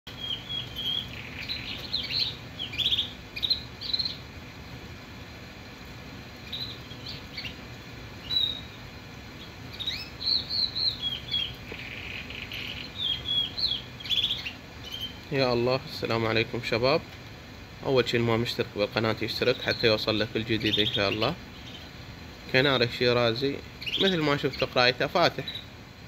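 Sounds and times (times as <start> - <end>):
canary chirping and trilling: 0.1 - 4.4, 6.4 - 15.7, 19.3 - 22.0, 22.6 - 25.7.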